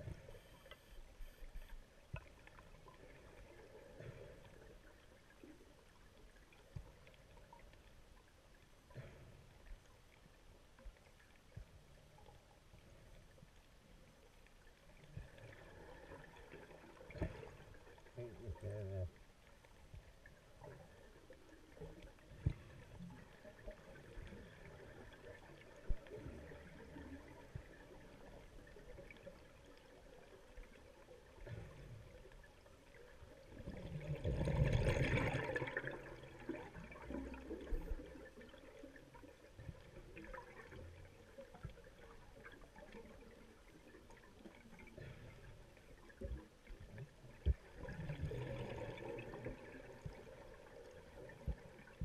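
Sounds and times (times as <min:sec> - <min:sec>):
diver exhaling bubbles: 0:33.7 - 0:37.8.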